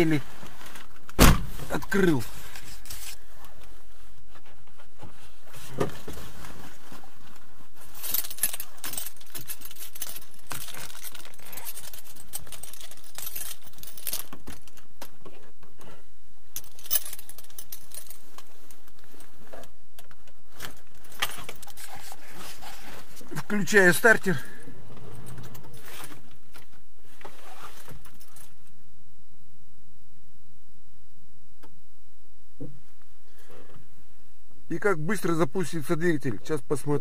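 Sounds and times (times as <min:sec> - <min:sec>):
handling clicks and rustles: 0:00.0 - 0:15.9, 0:16.5 - 0:28.8
car keys jangling: 0:07.9 - 0:14.8, 0:16.6 - 0:18.4, 0:20.7 - 0:22.1.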